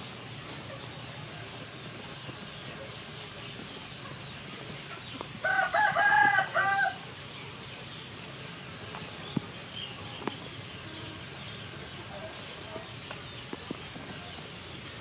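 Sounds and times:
rooster crowing: 0:05.4 - 0:07.0.

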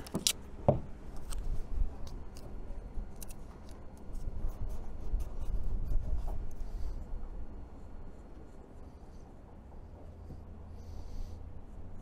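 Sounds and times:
tape and marker clicks and scrapes: 0:00.0 - 0:00.5, 0:01.1 - 0:06.9.

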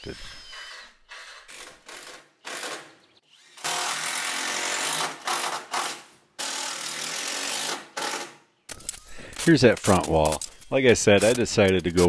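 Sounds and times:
cordless drill into wood: 0:00.0 - 0:08.4.

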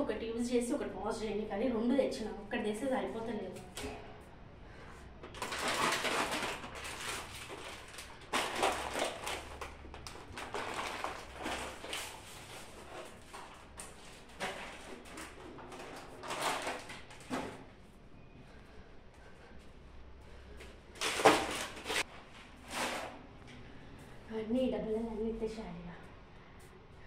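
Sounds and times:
packaging rustling and knocking: 0:05.3 - 0:17.7, 0:21.0 - 0:22.0.

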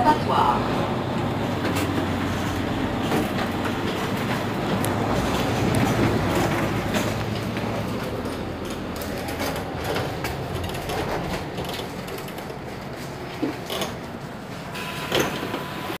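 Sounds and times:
bus engine running: 0:00.0 - 0:16.0
sharp clicks and knocks: 0:03.0 - 0:14.1.

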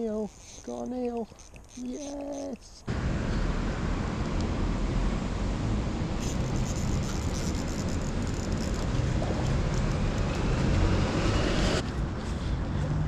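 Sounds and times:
wind rumbling on microphone: 0:02.9 - 0:13.0.

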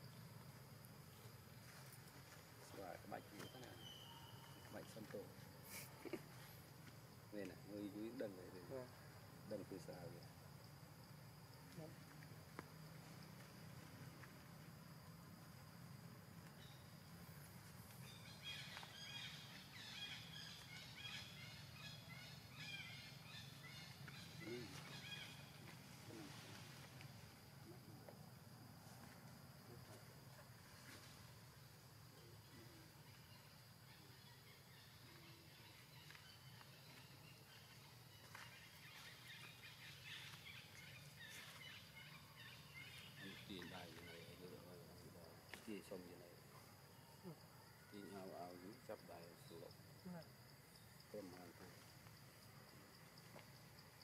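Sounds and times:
high chirping calls: 0:02.7 - 0:05.0
high chirping animal calls: 0:18.0 - 0:26.3.

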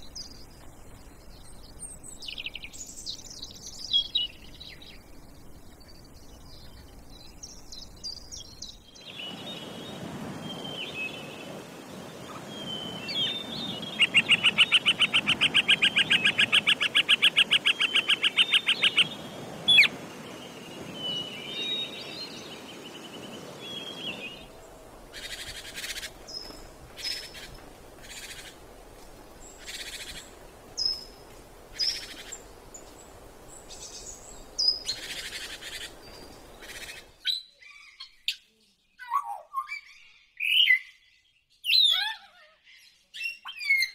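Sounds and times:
birds chirping: 0:00.0 - 0:43.9.

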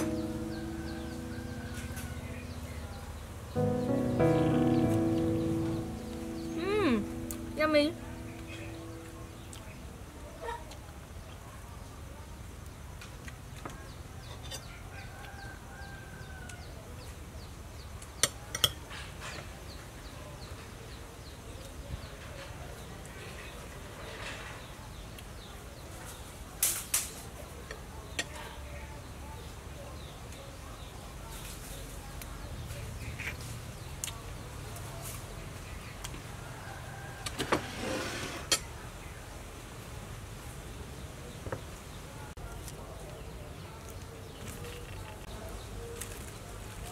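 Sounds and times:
plate scraping on wooden table: 0:37.3 - 0:38.7.

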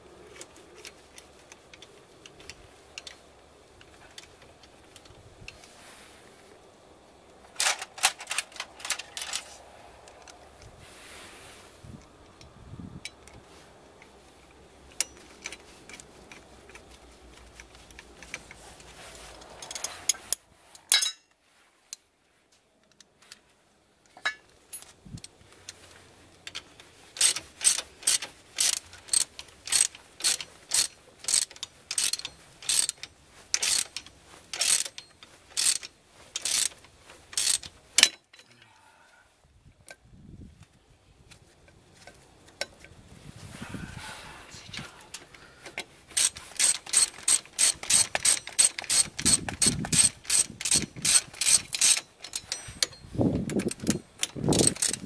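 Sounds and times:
ratchet wrench clicking: 0:19.4 - 0:20.4, 0:27.2 - 0:38.2, 0:46.1 - 0:55.0.

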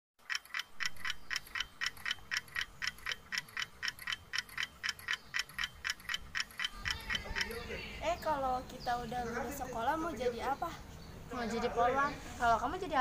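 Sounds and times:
steady ticking: 0:00.2 - 0:09.1.

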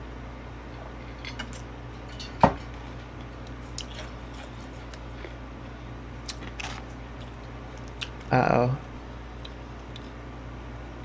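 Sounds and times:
wet eating clicks and smacks: 0:06.2 - 0:08.3, 0:09.4 - 0:10.2.

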